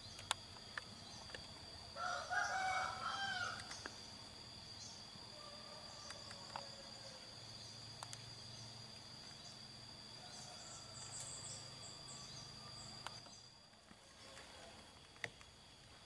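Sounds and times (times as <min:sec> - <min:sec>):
high-pitched insect drone: 0:00.0 - 0:16.0
bird chirps: 0:02.4 - 0:13.6.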